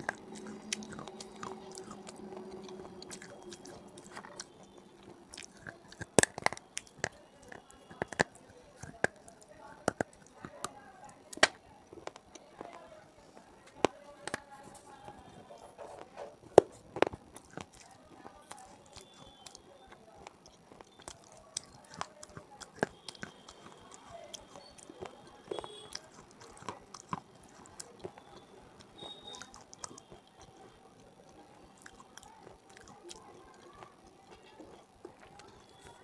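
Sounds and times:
crunching bites: 0.0 - 12.8, 15.8 - 36.0
crackling chewing: 0.0 - 36.0.

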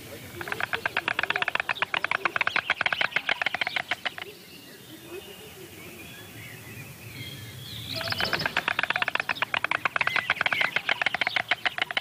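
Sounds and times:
faint bird chirps: 0.1 - 12.0
storks clattering bills: 0.3 - 4.3, 8.0 - 12.0.

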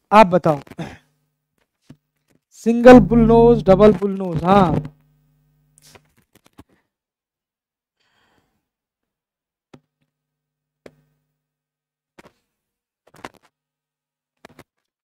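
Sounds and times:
low ringing hum: 2.8 - 4.9.

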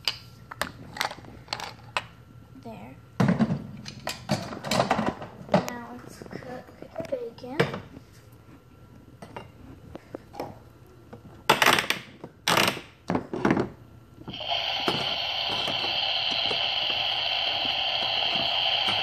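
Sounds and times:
electronic cooking sound effect: 14.3 - 19.0.

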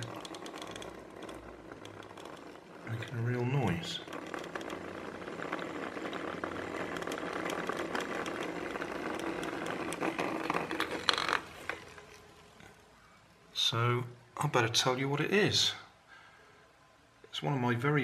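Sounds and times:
vibrating motor buzzing and rattling: 0.0 - 12.7.

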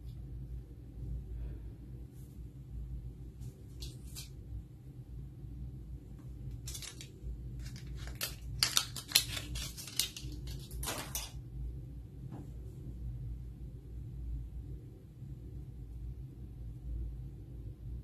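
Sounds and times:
plastic wrapper crinkling: 6.5 - 11.4
sharp crackles of wrapper: 6.6 - 11.3.

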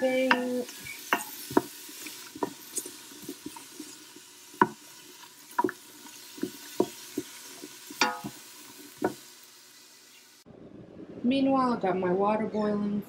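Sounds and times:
onions sizzling in a pot: 0.0 - 10.4.

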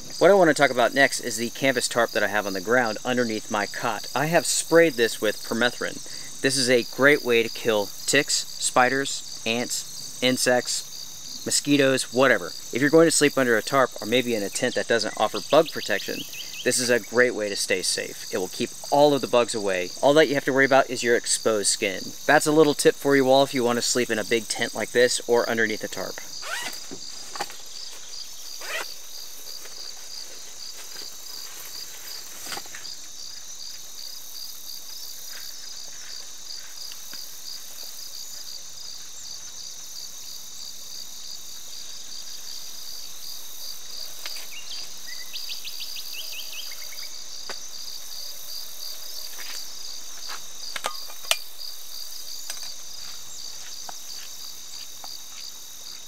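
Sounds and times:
insect chorus drone: 0.0 - 56.0.

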